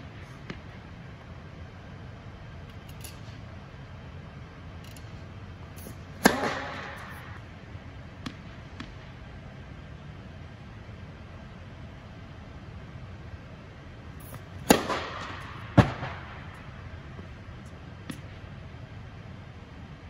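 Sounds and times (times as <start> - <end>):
racket striking tennis ball: 5.8 - 7.4, 14.6 - 16.2.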